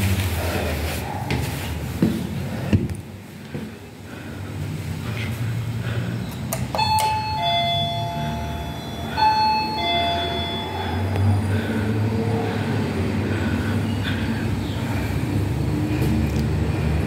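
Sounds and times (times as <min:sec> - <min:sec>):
electronic doorbell ding-dong chime: 0:06.8 - 0:11.2.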